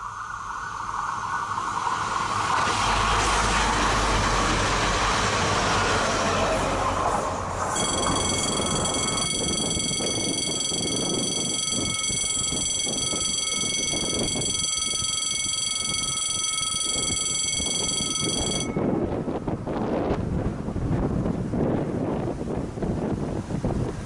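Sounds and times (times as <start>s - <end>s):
level crossing bell ringing: 7.8s - 19.0s.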